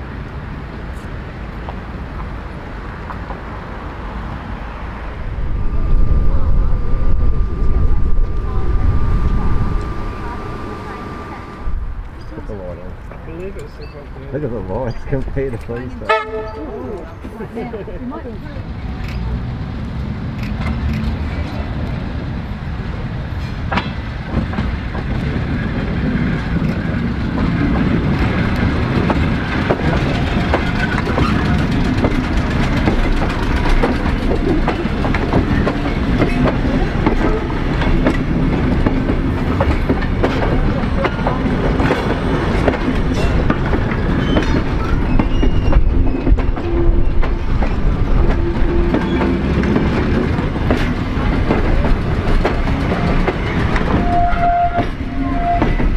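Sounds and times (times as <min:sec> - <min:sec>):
train rumble: 0:00.0 - 0:55.9
train wheels clicking over rail joints: 0:23.3 - 0:55.9.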